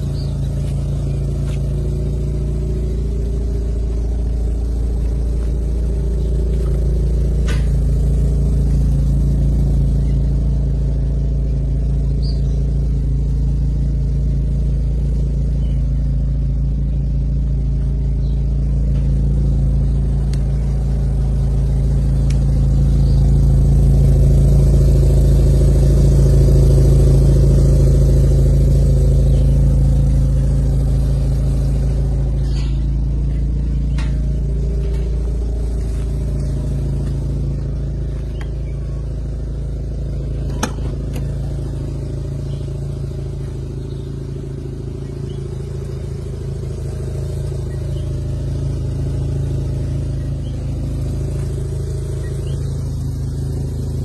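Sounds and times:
rotary engine idling: 0:00.0 - 0:54.0.

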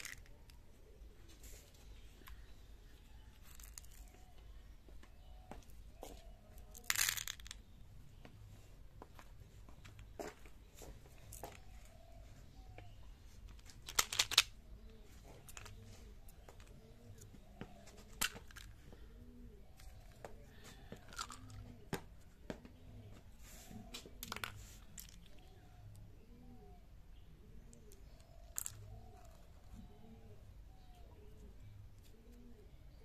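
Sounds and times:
plastic handling noise: 0:12.8 - 0:19.0, 0:19.7 - 0:22.0, 0:23.7 - 0:25.5.

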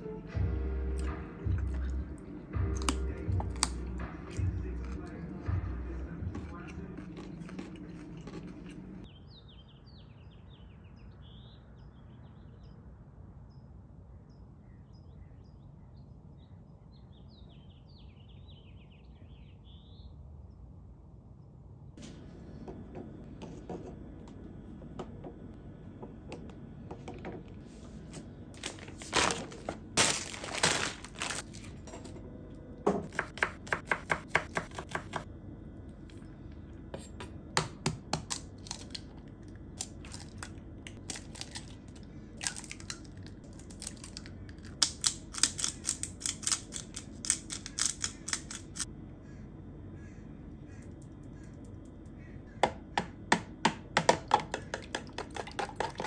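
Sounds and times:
low steady hum: 0:00.0 - 0:56.0
knife chopping on cutting board: 0:32.9 - 0:35.2.

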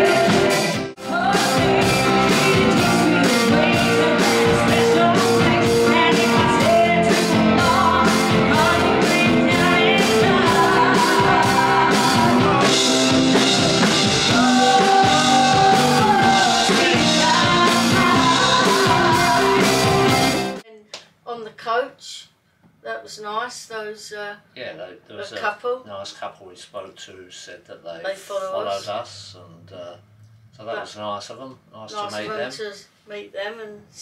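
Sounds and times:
drum kit: 0:00.0 - 0:20.6
electric guitar: 0:00.0 - 0:20.6
woman singing: 0:00.0 - 0:20.6.

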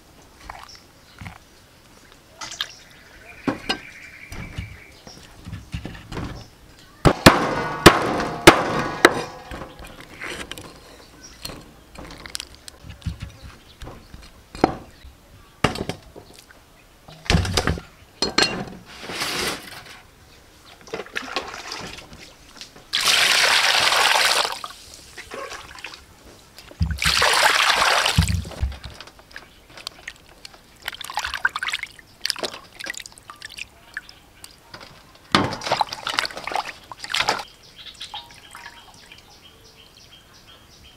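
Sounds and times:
water pouring and splashing: 0:00.0 - 0:01.4, 0:20.8 - 0:26.1, 0:26.7 - 0:34.1, 0:34.8 - 0:37.5
water sloshing in a bowl: 0:00.4 - 0:01.4, 0:20.8 - 0:26.1, 0:26.8 - 0:34.6, 0:35.4 - 0:37.5.

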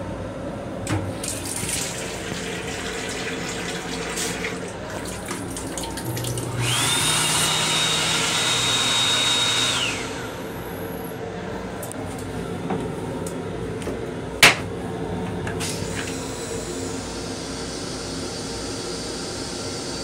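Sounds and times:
water splashing into sink: 0:01.1 - 0:06.7
motor high whine: 0:03.7 - 0:20.0.

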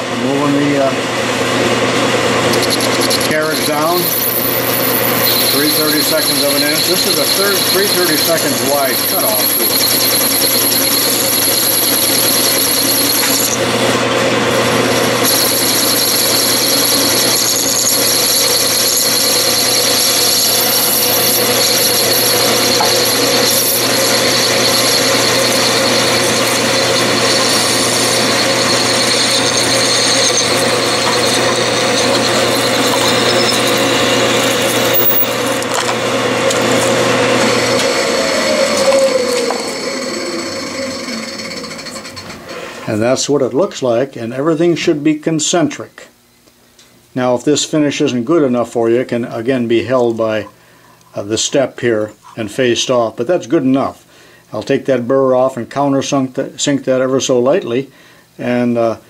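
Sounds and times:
metal lathe cutting: 0:00.1 - 0:42.6
lathe winding down: 0:01.1 - 0:42.9.

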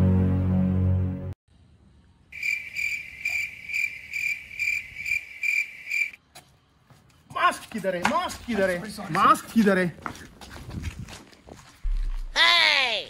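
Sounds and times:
cricket chirping: 0:02.2 - 0:06.2.

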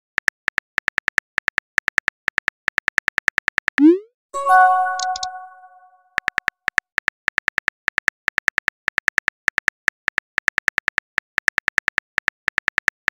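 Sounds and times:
phone keyboard typing clicks: 0:04.7 - 0:05.6.

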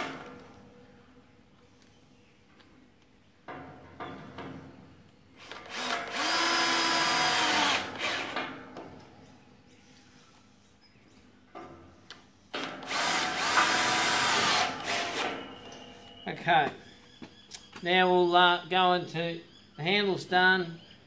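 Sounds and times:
power drill driving screw: 0:05.4 - 0:08.5, 0:12.6 - 0:15.4.

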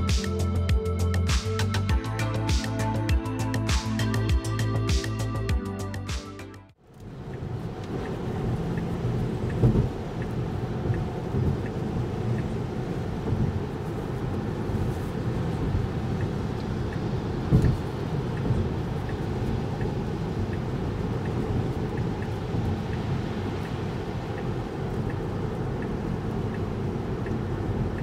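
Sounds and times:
road and tyre noise in rain: 0:06.8 - 0:28.0
turn signal ticking: 0:06.9 - 0:28.0.

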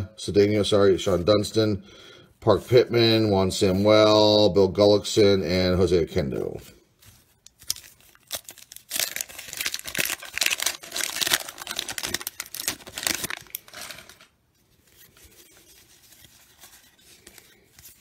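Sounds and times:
paper wrapper tearing and crinkling: 0:07.0 - 0:14.4.

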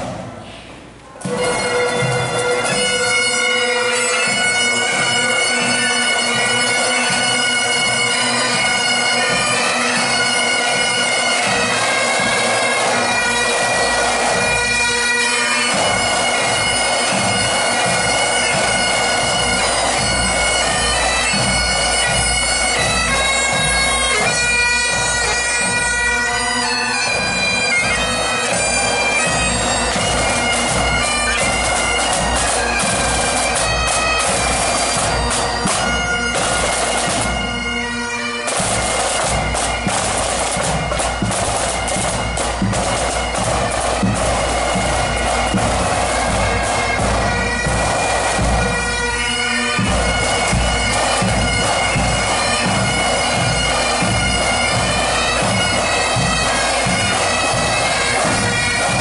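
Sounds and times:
bagpipes playing a march: 0:01.2 - 0:59.0
snare drum: 0:28.5 - 0:37.4, 0:38.5 - 0:48.8, 0:49.8 - 0:59.0.

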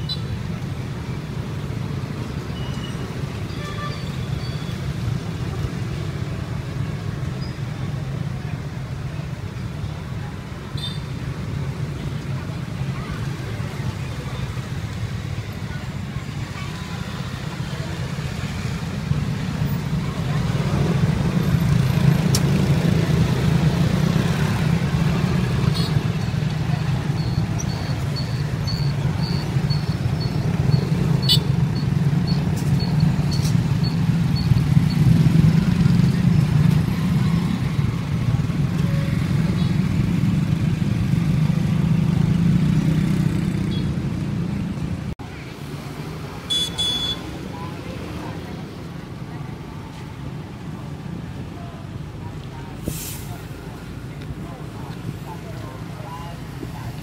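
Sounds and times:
traffic engine rumble: 0:00.0 - 0:57.0
faint voices: 0:47.2 - 0:57.0.

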